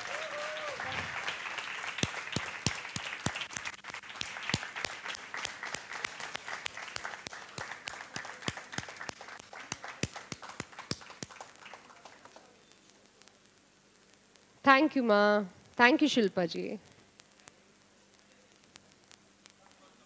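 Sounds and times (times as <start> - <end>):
audience applause: 0.0 - 12.6.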